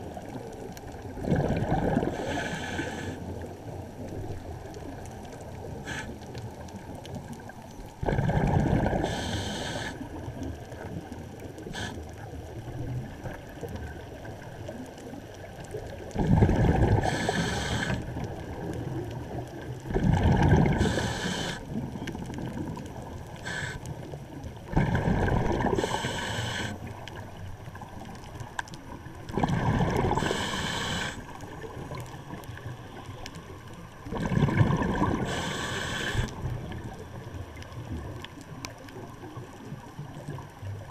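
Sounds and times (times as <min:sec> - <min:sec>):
exhaled bubbles rushing: 0:00.0 - 0:02.3, 0:06.8 - 0:09.4, 0:15.8 - 0:26.3, 0:28.9 - 0:30.6, 0:34.0 - 0:40.9.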